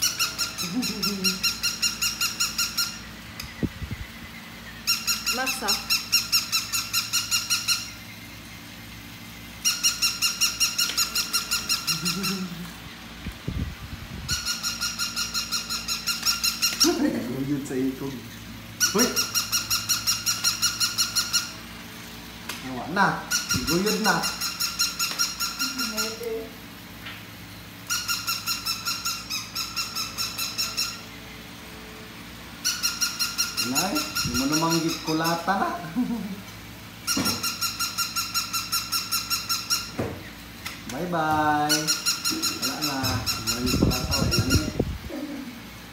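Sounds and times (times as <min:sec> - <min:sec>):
toy puppy squeaky barks: 0:04.9 - 0:07.8, 0:32.6 - 0:35.5.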